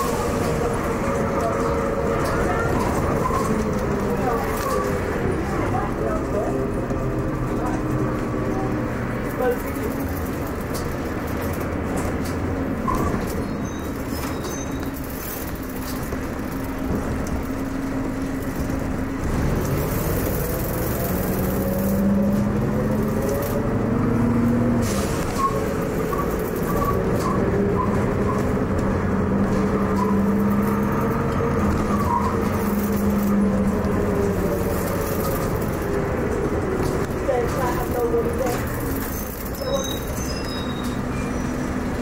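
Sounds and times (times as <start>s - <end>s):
bus diesel engine pulling away: 0.0s - 42.0s.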